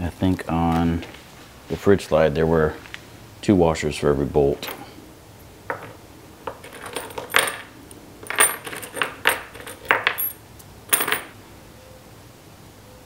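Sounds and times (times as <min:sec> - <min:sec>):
small metal parts clinking: 0:05.7 - 0:11.4.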